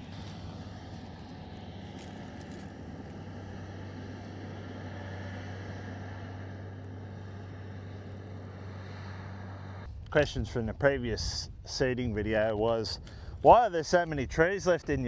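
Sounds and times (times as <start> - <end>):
farm vehicle engine humming: 0.0 - 10.2.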